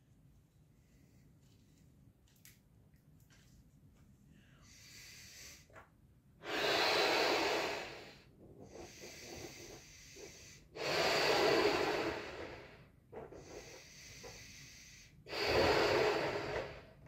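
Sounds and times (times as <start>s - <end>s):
quiet breathing: 0.7s - 1.8s, 4.0s - 17.0s
breaths blown into balloon: 6.4s - 17.0s.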